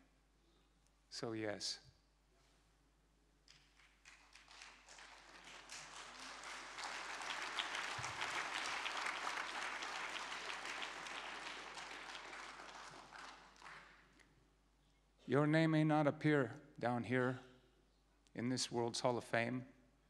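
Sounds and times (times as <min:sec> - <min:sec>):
audience applauding: 0:03.5 - 0:14.0.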